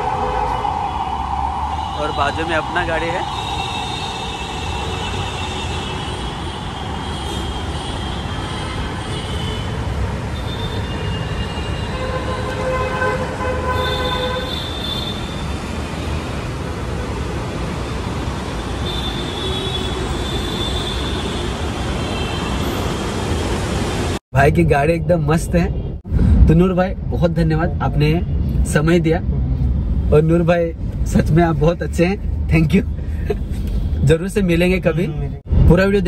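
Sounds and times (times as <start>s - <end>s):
city traffic rumble: 0.0s - 36.0s
car horns: 2.0s - 16.2s, 18.0s - 23.7s.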